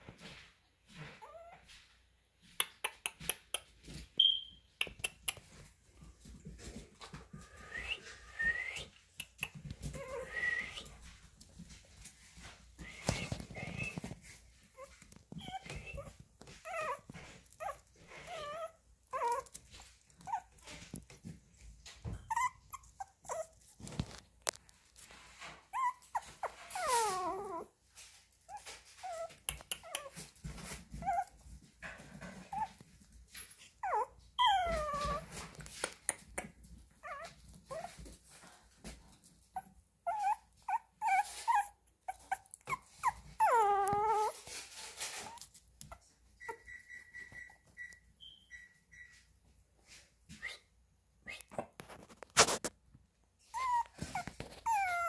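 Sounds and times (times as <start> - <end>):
puppy whining: 0.9 - 1.8, 3.2 - 52.7, 53.4 - 55.0
puppy squeaking and yipping: 9.3 - 11.7, 12.4 - 24.2, 25.4 - 38.6, 39.4 - 49.4, 53.4 - 55.0.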